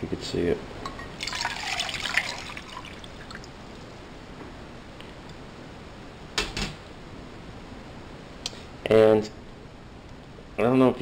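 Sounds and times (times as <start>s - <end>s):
water pouring into metal pot: 1.2s - 3.5s.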